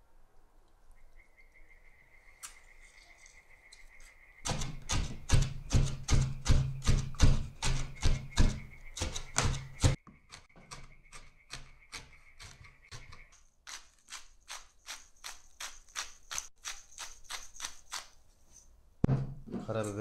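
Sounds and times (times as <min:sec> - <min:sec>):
knife chopping on wooden board: 0:04.5 - 0:10.0.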